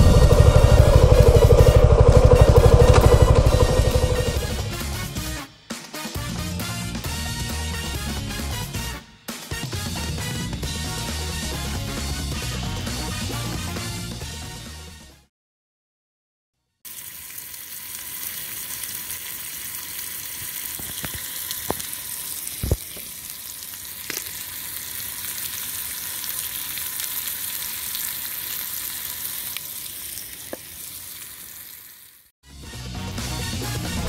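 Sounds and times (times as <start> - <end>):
meat sizzling in a frying pan: 16.9 - 32.3.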